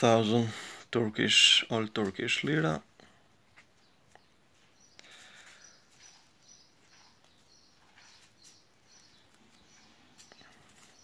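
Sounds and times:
high bird chirps: 3.8s - 11.0s
paper banknotes rustling: 9.2s - 11.0s.

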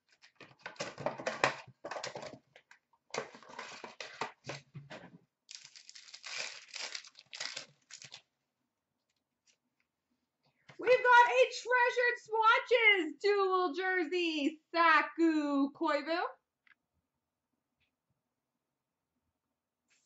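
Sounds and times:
card wrappers crinkling and tearing: 5.5s - 8.3s.

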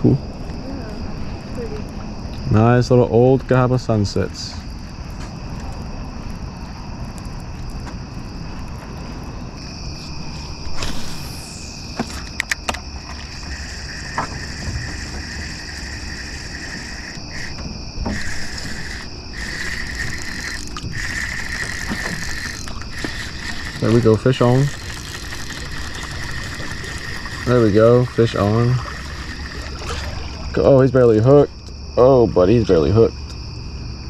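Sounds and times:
night insects chirping: 0.0s - 34.0s
fishing reel clicks: 12.4s - 29.7s.

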